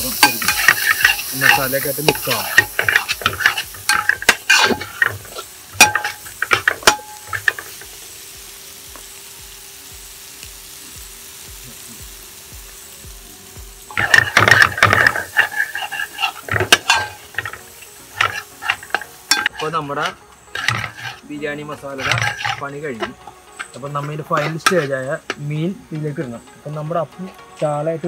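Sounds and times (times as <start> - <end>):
masala sizzling: 0.0 - 28.0
metal ladle scraping a pot: 0.1 - 7.6, 13.9 - 25.4.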